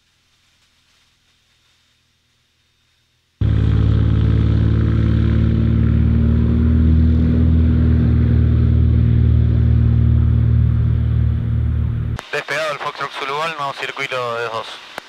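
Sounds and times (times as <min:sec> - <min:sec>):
airplane engine and propeller drone: 0:03.4 - 0:15.0.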